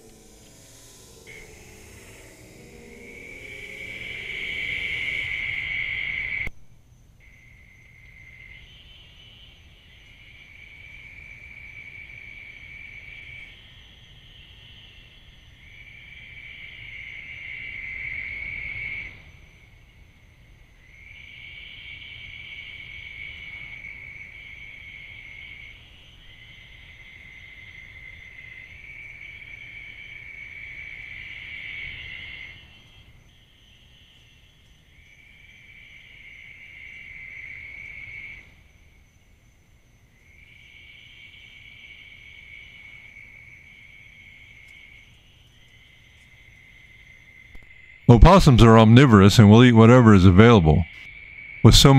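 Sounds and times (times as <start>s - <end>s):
night insects trilling: 0.0s - 48.1s, 50.6s - 51.9s.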